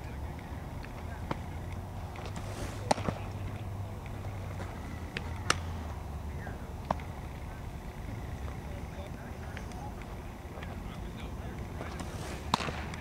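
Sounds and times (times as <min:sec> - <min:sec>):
steady low hum: 0:00.0 - 0:13.0
ball smacking into glove: 0:02.2 - 0:03.2, 0:05.1 - 0:05.7, 0:11.8 - 0:13.0
baseball popping into catcher's mitt: 0:05.1 - 0:05.7, 0:11.8 - 0:13.0.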